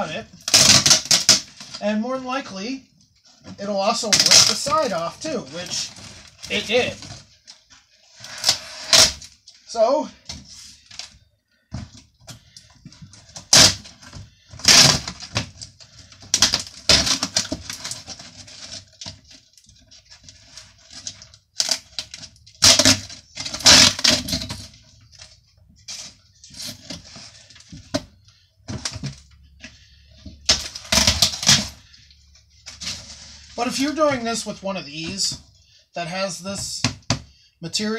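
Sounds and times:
woven panel tearing: 0.4s - 1.8s, 30.5s - 31.8s.

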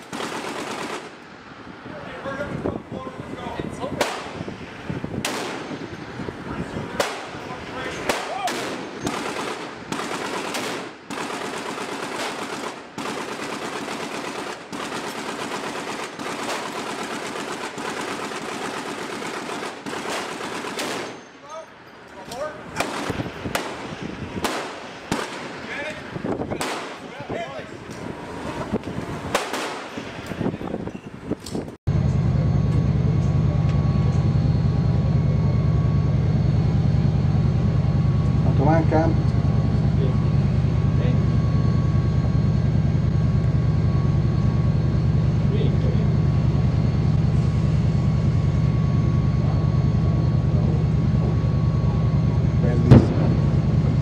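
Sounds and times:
automatic gunfire bursts: 0.0s - 1.2s, 8.1s - 21.3s, 22.8s - 25.6s, 26.6s - 27.0s, 29.3s - 29.9s
helicopter rotor chopping: 0.0s - 54.0s.

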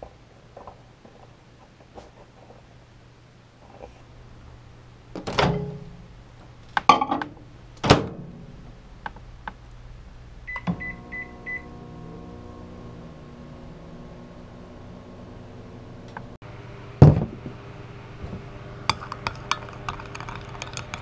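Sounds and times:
microwave oven humming: 10.2s - 19.9s.

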